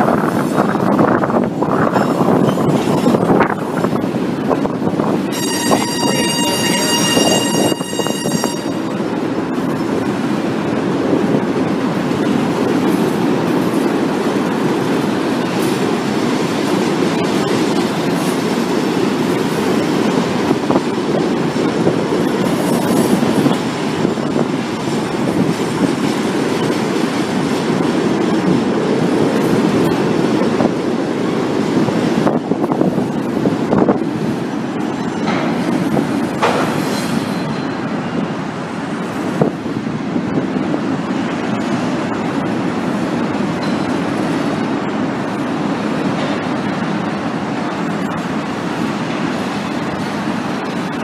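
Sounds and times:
steel wheels rumbling on rail: 0.0 - 51.0
train wheel clacks: 1.8 - 51.0.

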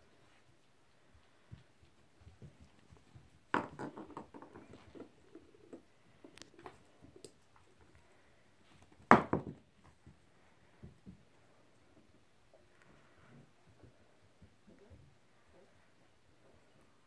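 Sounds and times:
puppies scuffling: 0.0 - 8.0.

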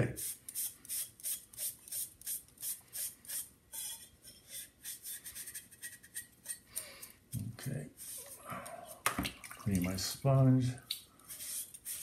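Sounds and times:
sponge scrubbing porcelain: 11.2 - 12.0.

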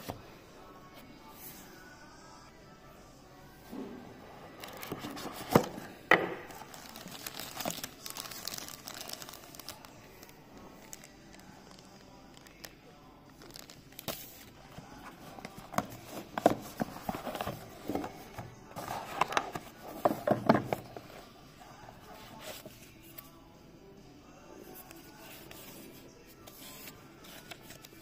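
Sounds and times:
plastic wrapping crinkling: 6.5 - 21.1.

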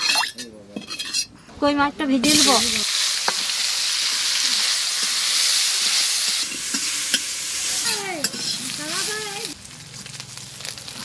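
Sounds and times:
fish frying in hot oil: 2.3 - 11.0.

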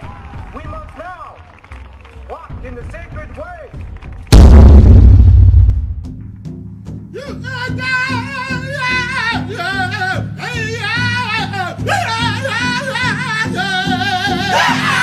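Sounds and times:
pulsing low accompaniment: 2.5 - 7.1
person singing with vibrato: 7.2 - 15.0.

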